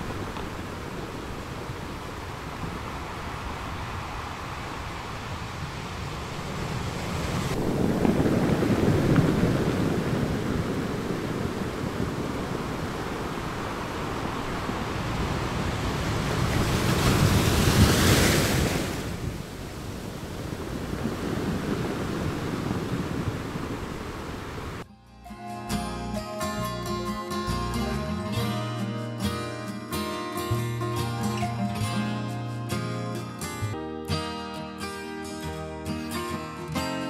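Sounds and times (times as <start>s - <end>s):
sea waves crashing on rocks: 0.0s - 24.9s.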